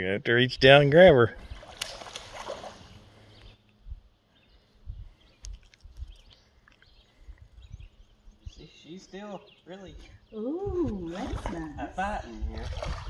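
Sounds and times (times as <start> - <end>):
fish splashing at surface: 1.6 - 3.0.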